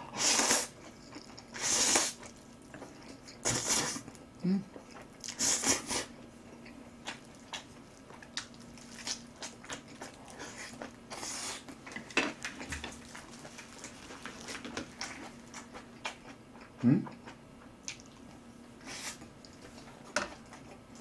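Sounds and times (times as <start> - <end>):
faint steady hum: 0.0 - 21.0
wet chewing and smacking: 6.4 - 18.4.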